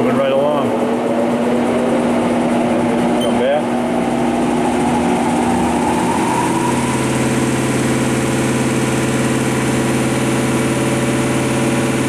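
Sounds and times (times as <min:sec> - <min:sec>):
lathe servo mechanical whine: 0:00.8 - 0:09.6.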